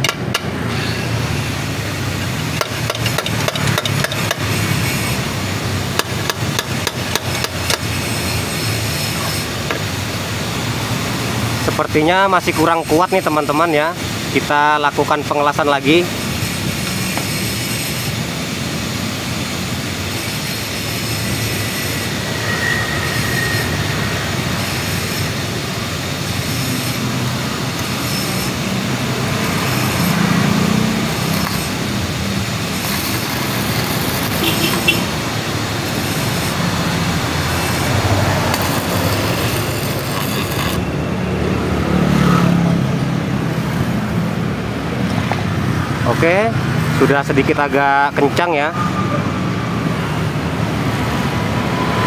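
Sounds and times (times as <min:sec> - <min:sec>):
arc welder crackling and hissing: 0:00.6 - 0:41.0.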